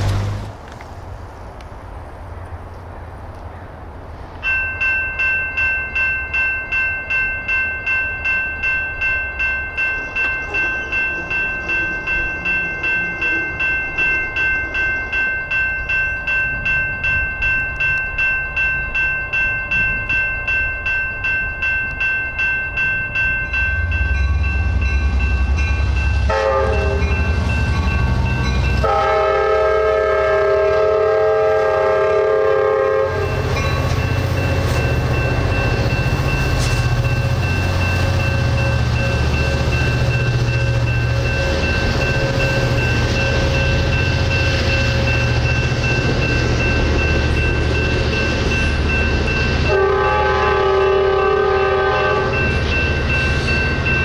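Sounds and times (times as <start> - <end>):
train rumble: 0.0 - 54.0
railroad crossing bell dinging: 4.3 - 54.0
train horn blasts: 26.2 - 27.3, 28.8 - 33.5, 49.7 - 52.5.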